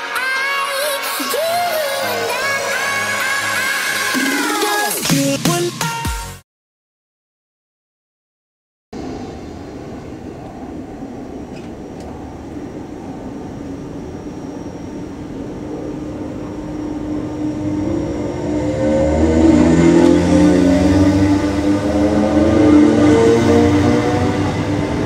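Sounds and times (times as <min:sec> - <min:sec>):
traction motors whining: 0:09.0 - 0:25.0.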